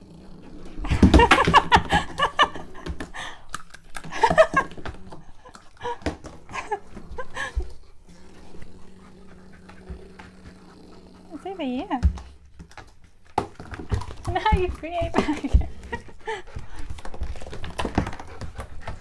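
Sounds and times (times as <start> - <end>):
person laughing: 0.9 - 3.4, 4.0 - 4.8, 5.8 - 7.7, 14.3 - 16.7.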